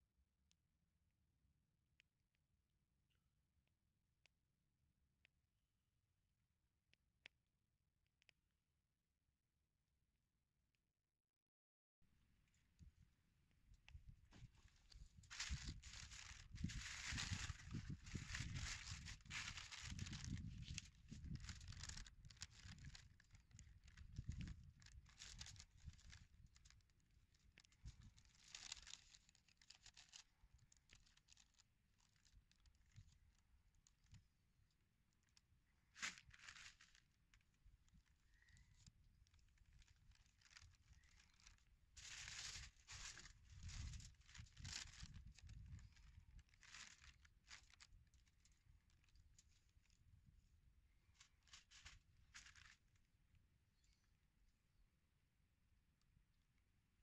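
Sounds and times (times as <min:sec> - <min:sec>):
baking paper crinkling: 0:14.3 - 0:33.2, 0:36.0 - 0:37.0, 0:38.8 - 0:50.2, 0:51.2 - 0:52.8.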